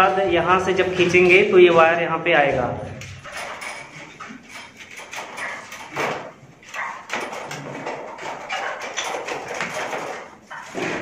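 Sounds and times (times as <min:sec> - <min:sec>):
wire scraping through conduit: 0:02.9 - 0:11.0.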